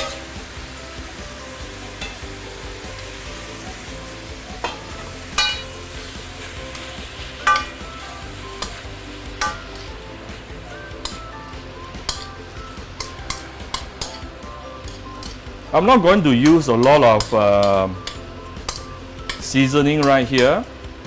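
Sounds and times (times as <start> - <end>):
metal clanks against pan: 0.0 - 0.3, 2.0 - 2.3, 4.6 - 5.8, 6.7 - 7.9, 9.4 - 9.9, 11.0 - 11.3, 12.0 - 12.4, 13.0 - 15.5, 16.8 - 20.6
vegetables sizzling in a pan: 0.0 - 21.0
metal spatula stirring: 4.6 - 10.0, 10.8 - 20.5.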